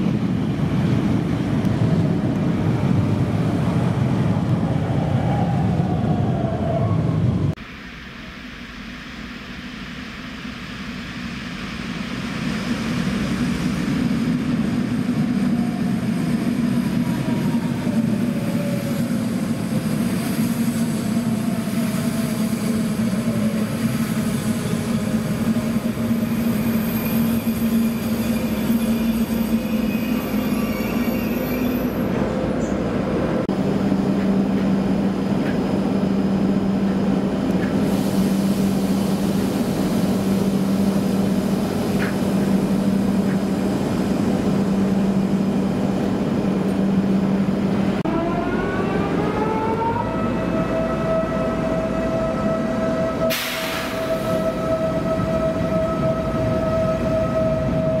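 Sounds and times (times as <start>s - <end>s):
electric train arriving: 0.0s - 58.0s
train low hum: 0.0s - 58.0s
wheel squeal: 26.4s - 32.2s
train whine falling in pitch: 48.1s - 58.0s.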